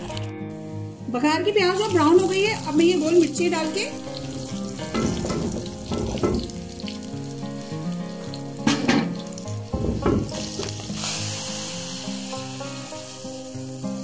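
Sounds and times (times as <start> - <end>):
hot oil sizzling in a pan: 0.0 - 14.0
loud hiss of oil poured: 10.4 - 14.0.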